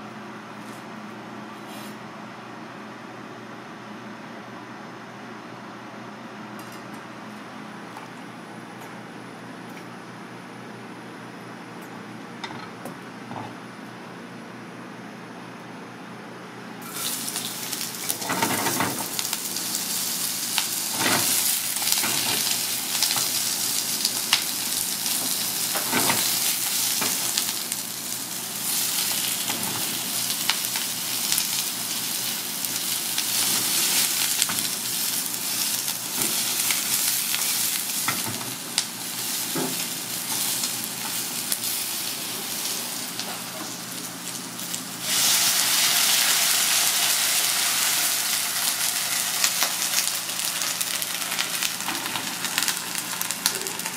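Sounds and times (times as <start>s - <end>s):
food frying in hot oil: 16.8s - 53.9s.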